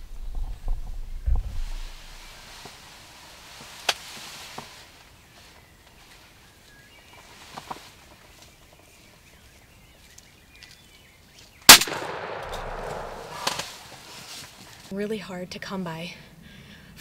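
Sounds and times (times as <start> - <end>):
shotgun blast: 11.7 - 13.7.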